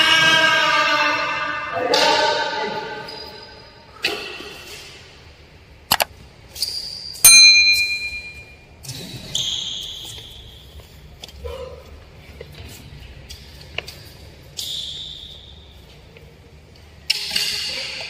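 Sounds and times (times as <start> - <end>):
bright bell-like dings: 7.2 - 8.6.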